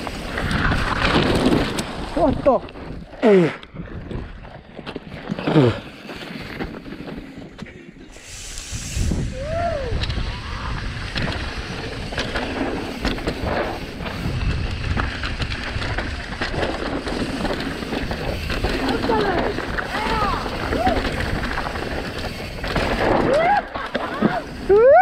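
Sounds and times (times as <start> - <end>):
bike clattering over bumps: 0.0 - 3.2, 10.0 - 24.7
tyres on dirt: 0.0 - 9.3, 9.9 - 24.9
wind on microphone: 8.2 - 23.3.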